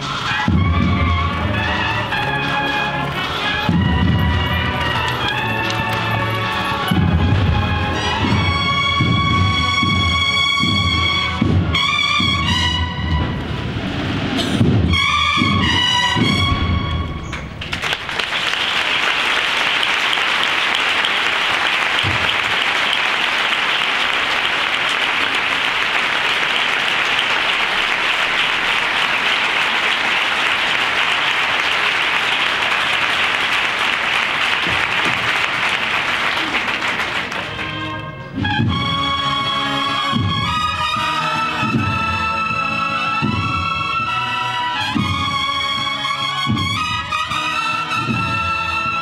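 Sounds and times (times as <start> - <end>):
crowd applauding: 0.0 - 9.8, 17.4 - 41.5
drum beats: 0.0 - 13.7, 14.4 - 17.2, 21.1 - 23.0, 36.4 - 49.0
brass band playing a march: 0.0 - 17.3, 19.4 - 49.0.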